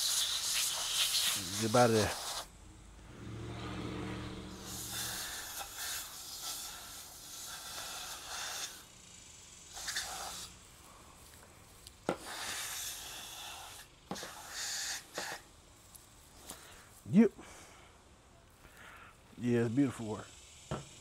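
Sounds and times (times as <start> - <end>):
compressed air hissing: 0.0 - 15.6.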